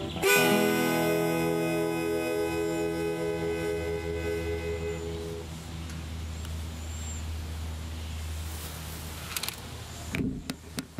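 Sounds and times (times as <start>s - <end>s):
acoustic guitar and harmonica chord: 0.0s - 5.6s.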